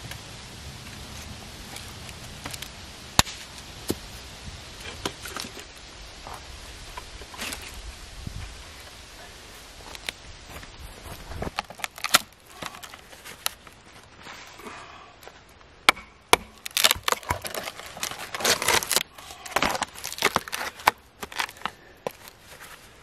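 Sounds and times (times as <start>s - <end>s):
sharp wooden knocks: 15.9s - 17.4s
knife scraping tree bark: 15.9s - 22.8s.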